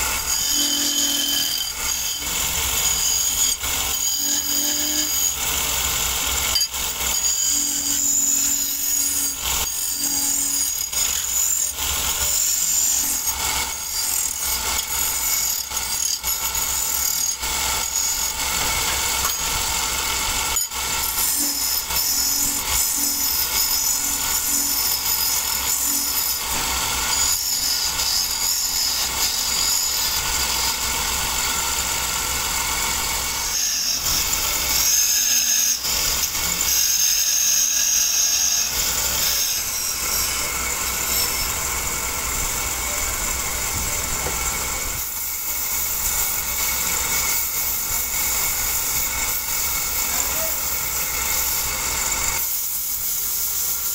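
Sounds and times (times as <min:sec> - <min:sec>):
chisel scraping spinning wood: 0:00.0 - 0:53.9
lathe motor humming: 0:16.4 - 0:53.8.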